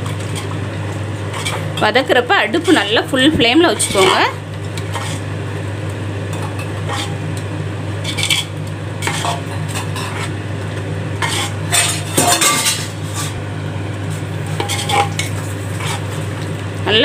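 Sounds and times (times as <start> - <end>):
steady low hum: 0.0 - 17.0
metal spoon scraping a pot: 1.2 - 3.1, 3.7 - 5.3, 6.3 - 7.3, 8.0 - 10.4, 11.2 - 13.4, 14.5 - 16.4.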